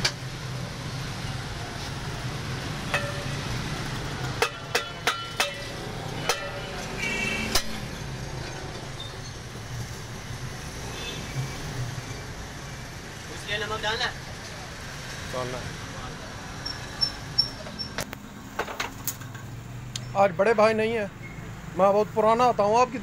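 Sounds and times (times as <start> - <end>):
street traffic hum: 0.0 - 23.0
metallic clinks and knocks: 2.9 - 6.8.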